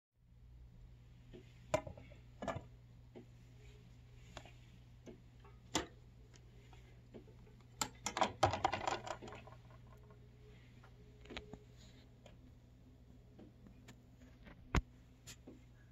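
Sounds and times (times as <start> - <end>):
low hum: 0.2 - 15.9
record handling clicks and knocks: 1.4 - 3.3, 5.1 - 6.0, 7.2 - 9.8.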